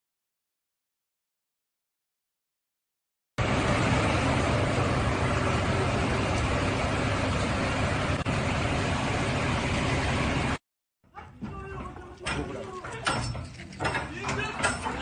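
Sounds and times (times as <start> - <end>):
low engine hum: 3.4 - 10.6.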